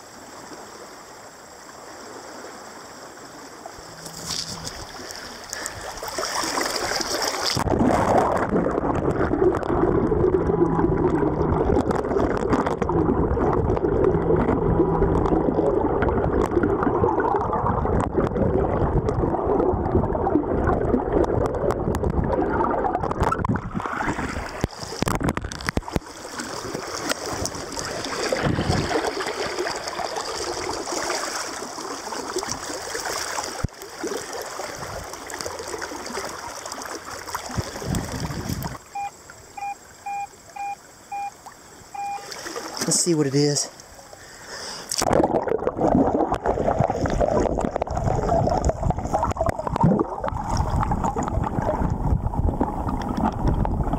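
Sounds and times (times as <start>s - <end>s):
river water splashing: 0.0s - 18.0s, 22.5s - 51.9s
muffled underwater noise: 7.6s - 20.8s.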